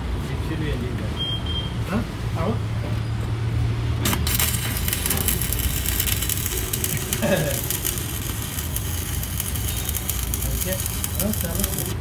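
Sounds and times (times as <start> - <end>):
arc welding crackling: 4.0 - 12.0.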